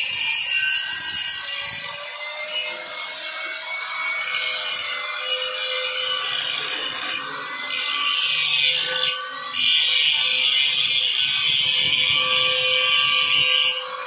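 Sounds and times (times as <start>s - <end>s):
angle grinder grinding steel: 0.0s - 14.0s.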